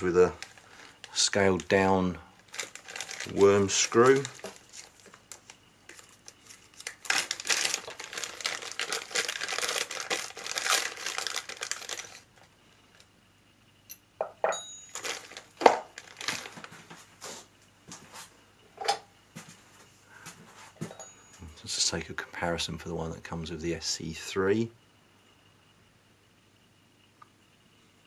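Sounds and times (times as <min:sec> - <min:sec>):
plastic bag crinkling: 0:00.0 - 0:13.0, 0:14.9 - 0:16.9
metal parts clinking on wooden table: 0:13.9 - 0:15.2.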